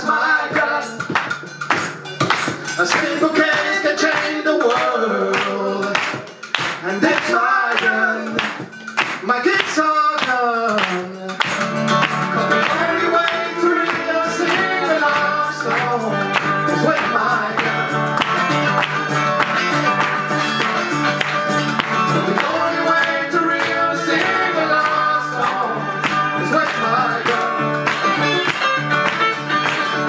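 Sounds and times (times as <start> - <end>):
acoustic guitar: 0.0 - 30.0
hand claps: 0.9 - 30.0
bass line: 9.3 - 30.0
lap slide guitar: 11.7 - 30.0.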